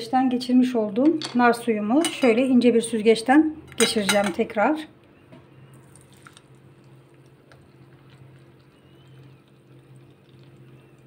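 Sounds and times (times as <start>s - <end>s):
juice pouring and dripping: 5.7s - 11.0s.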